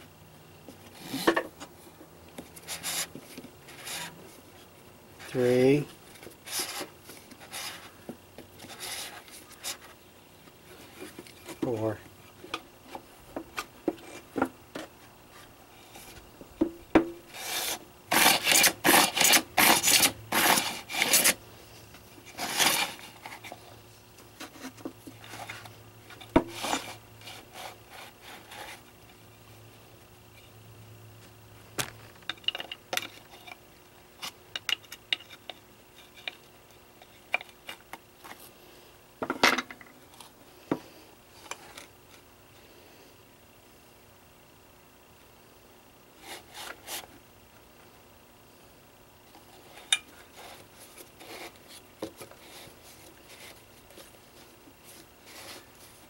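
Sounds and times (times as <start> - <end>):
scraping and rubbing on plastic: 2.4 - 4.6, 6.2 - 10.0, 17.3 - 21.4, 22.2 - 28.9, 49.4 - 56.0.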